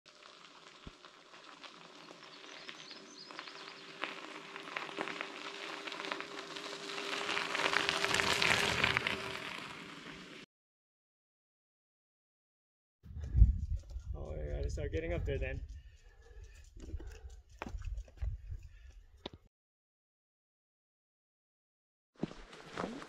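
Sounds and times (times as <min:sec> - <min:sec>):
bike tyres crunching on gravel: 0:00.1 - 0:10.4.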